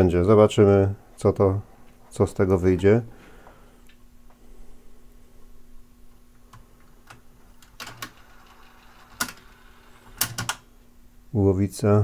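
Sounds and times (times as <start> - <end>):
faint steady hum: 0.0 - 12.0
tape mechanism clicking: 6.5 - 10.7.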